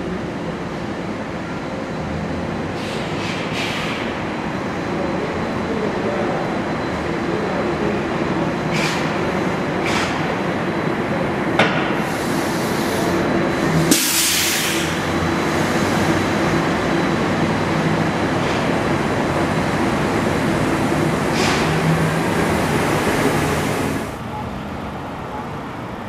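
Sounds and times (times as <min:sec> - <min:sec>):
electric trolley bus rolling past: 0:00.0 - 0:26.0
burst of air hiss: 0:12.0 - 0:13.1, 0:13.9 - 0:15.0.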